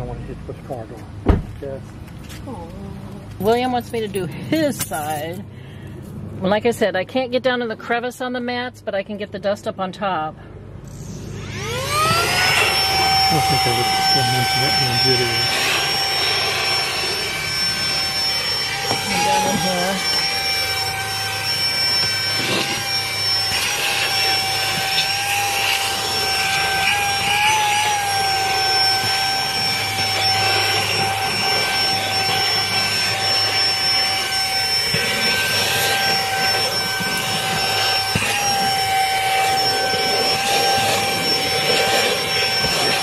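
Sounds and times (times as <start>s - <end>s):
vacuum cleaner whining: 10.8s - 43.0s.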